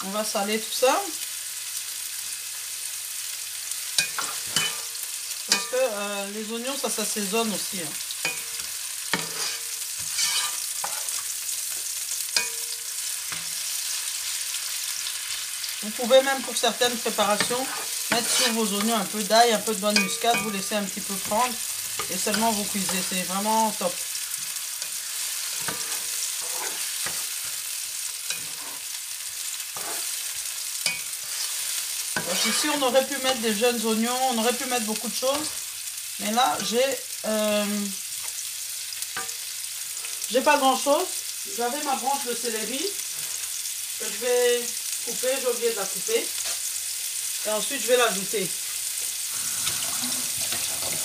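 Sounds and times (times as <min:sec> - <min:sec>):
onions sizzling in oil: 0:00.0 - 0:51.0
spatula scraping pan: 0:03.9 - 0:06.0, 0:08.0 - 0:35.7, 0:49.3 - 0:51.0
spatula knocking pan: 0:08.2 - 0:11.2, 0:12.4 - 0:13.6, 0:17.3 - 0:23.1.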